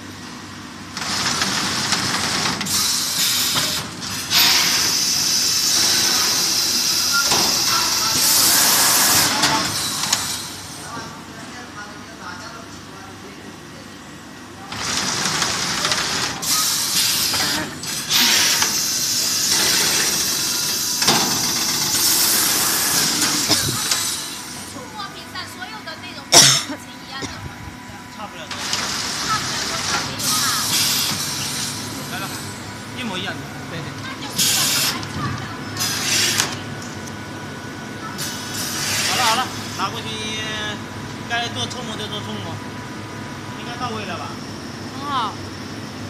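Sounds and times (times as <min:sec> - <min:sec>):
vacuum forming machine hissing air: 0:01.1 - 0:11.4, 0:13.7 - 0:25.0, 0:26.3 - 0:46.0
compressed air hissing: 0:34.4 - 0:35.0, 0:35.8 - 0:36.4.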